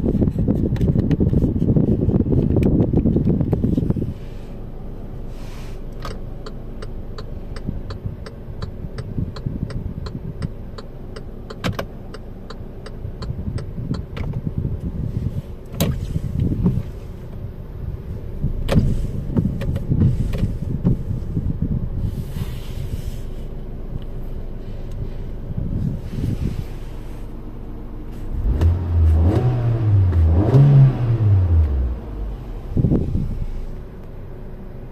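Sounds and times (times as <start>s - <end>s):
car engine idling: 0.0s - 34.9s
turn signal ticking: 5.9s - 15.0s.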